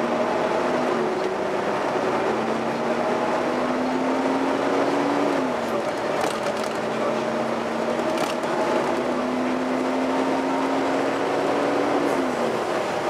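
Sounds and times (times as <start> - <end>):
bus engine and fan hum: 0.0 - 13.0.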